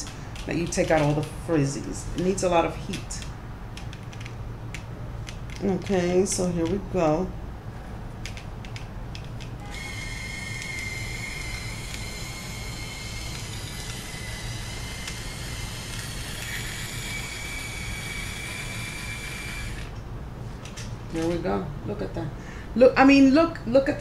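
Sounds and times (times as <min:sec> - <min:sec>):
hair iron motor whining: 0:09.6 - 0:20.0.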